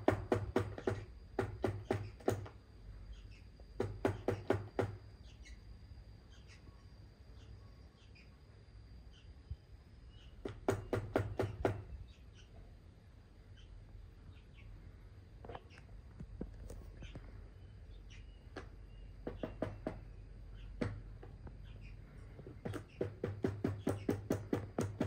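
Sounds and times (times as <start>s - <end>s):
bird bill knocking on plastic: 0.0s - 2.6s, 3.8s - 5.0s, 18.6s - 20.0s, 20.8s - 21.4s, 22.4s - 25.0s.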